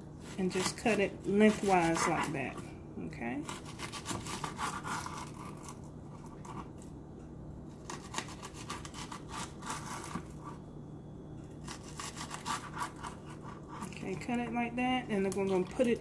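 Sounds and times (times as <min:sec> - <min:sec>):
knife slicing cabbage on board: 0:00.2 - 0:02.6, 0:03.4 - 0:06.7, 0:07.8 - 0:10.6, 0:11.6 - 0:14.0.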